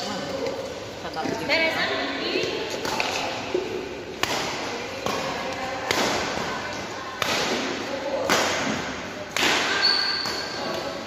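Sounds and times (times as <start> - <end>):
badminton rackets hitting shuttlecock: 2.4 - 11.0.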